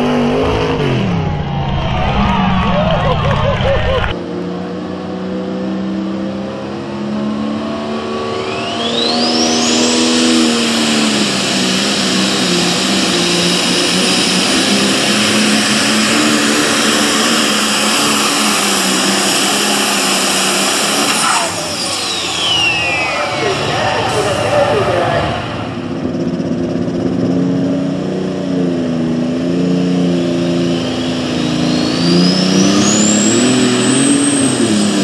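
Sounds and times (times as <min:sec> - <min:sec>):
diesel tractor engine at full throttle: 0:00.0 - 0:35.0
turbo whine: 0:08.2 - 0:27.4, 0:29.0 - 0:35.0.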